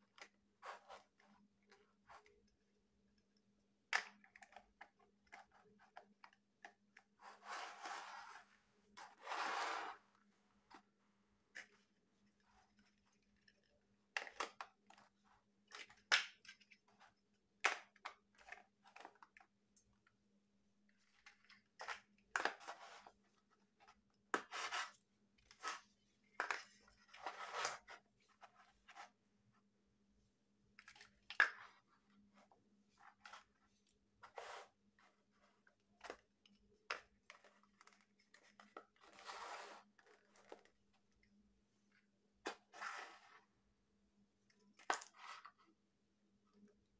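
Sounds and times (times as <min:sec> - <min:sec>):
plastic blocks clicking and knocking: 0:01.6 - 0:07.1, 0:11.5 - 0:19.9.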